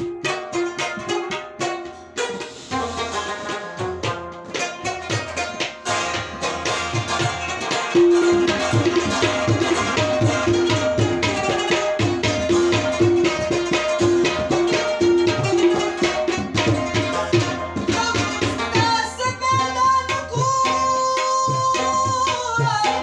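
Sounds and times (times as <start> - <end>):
plucked rubab notes: 0.0 - 23.0
tabla rhythm: 0.0 - 23.0.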